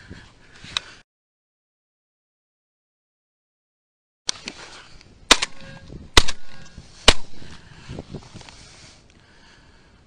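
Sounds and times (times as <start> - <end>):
shotgun shots: 5.3 - 7.5.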